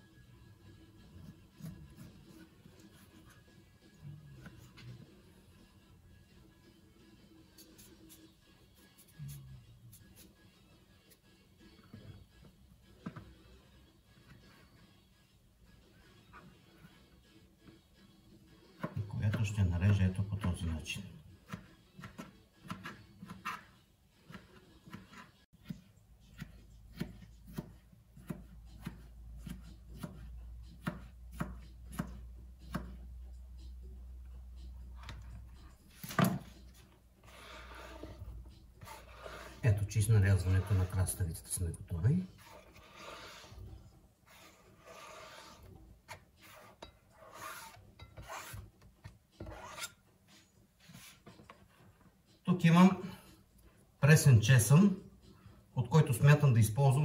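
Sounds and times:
knife chopping on cutting board: 21.4s - 23.7s, 24.3s - 33.0s
cucumber scraped off cutting board: 37.2s - 38.2s, 38.8s - 41.2s, 42.3s - 43.6s, 44.3s - 48.6s, 49.4s - 50.0s.

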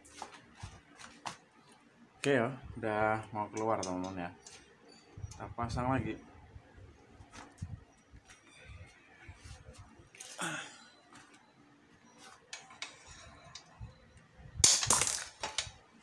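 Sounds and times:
person exhaling: 10.3s - 10.8s.

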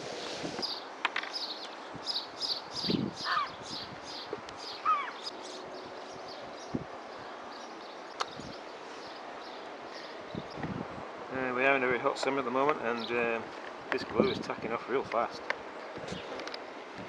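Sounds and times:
birds chirping: 0.0s - 16.8s
lower down-slurred bird calls: 0.6s - 6.7s.

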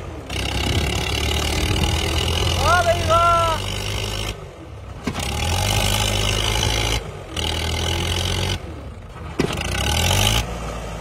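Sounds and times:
tractor diesel engine under load: 0.0s - 11.0s.

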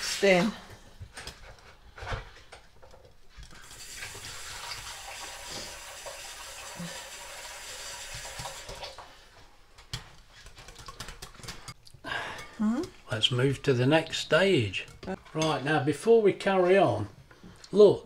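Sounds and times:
kitchen tap running: 3.6s - 9.1s.

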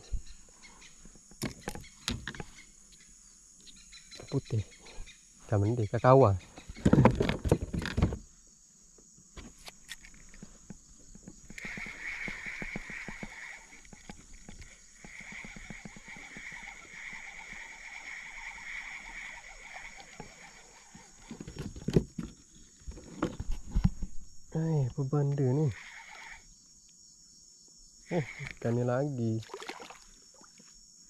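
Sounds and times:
high-pitched animal calls: 14.6s - 21.3s, 25.5s - 26.5s.

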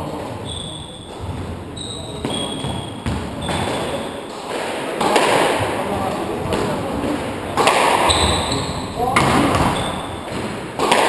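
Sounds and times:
shoes squeaking on wooden floor: 0.1s - 4.5s, 5.6s - 10.6s
squash ball knocks: 2.2s - 8.5s, 9.1s - 11.0s.

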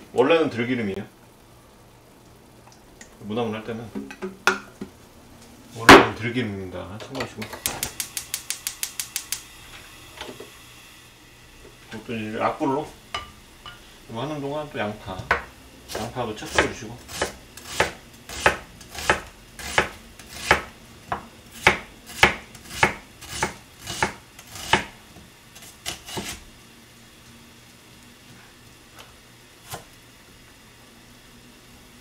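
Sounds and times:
knife slicing onion on cutting board: 15.3s - 25.0s, 25.6s - 26.4s, 29.6s - 29.9s.

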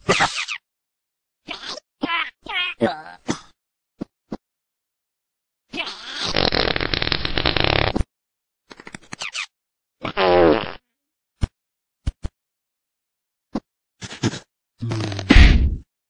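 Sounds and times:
cartoon fart sound effect: 6.2s - 8.0s, 10.0s - 10.8s, 14.2s - 15.8s.

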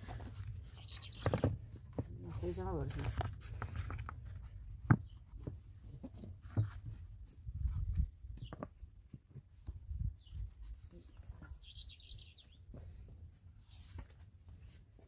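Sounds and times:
stones knocking and scraping: 0.0s - 9.8s.

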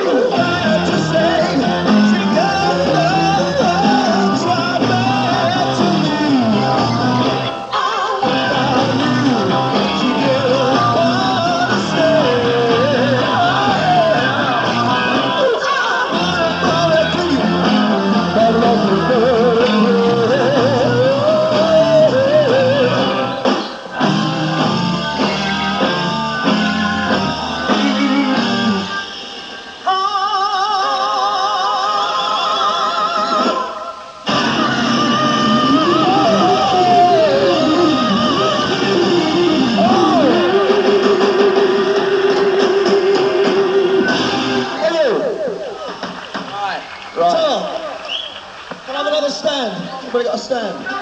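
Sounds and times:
guitar and bass riff: 0.0s - 29.8s, 34.2s - 45.8s
live hard rock band playing: 0.0s - 29.9s, 33.4s - 46.5s
wavering lead melody: 35.0s - 44.8s.

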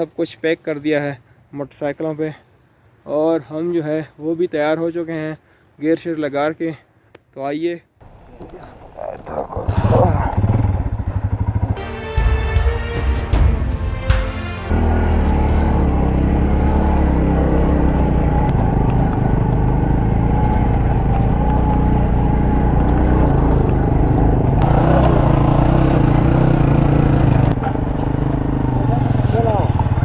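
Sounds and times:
motorcycle engine running: 9.6s - 11.8s, 14.7s - 30.0s.

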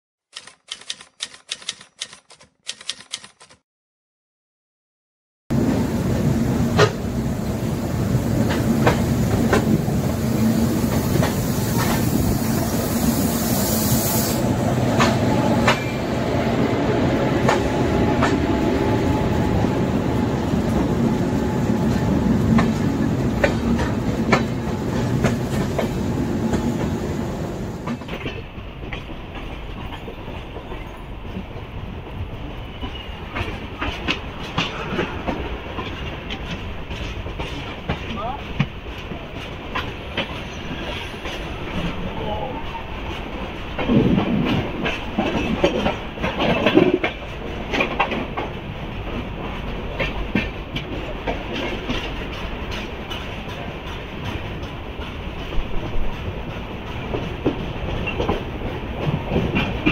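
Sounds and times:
train coach rolling over rails: 14.6s - 59.9s
wheels clicking over rail joints: 43.6s - 59.9s.

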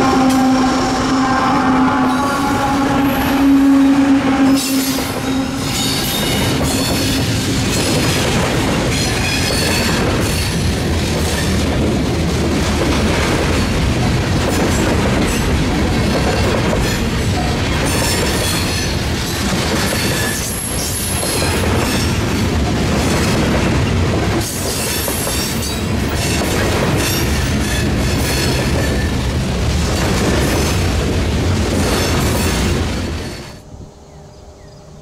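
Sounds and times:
high wheel squeal: 2.0s - 7.4s
train wheels clacking over rail joints: 4.6s - 33.6s.

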